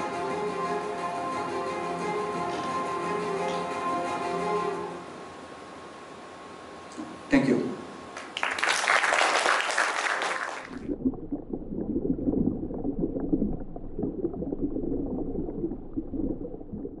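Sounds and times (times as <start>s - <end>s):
audience applause: 8.2s - 10.8s
water bubbling and gurgling: 10.7s - 17.0s.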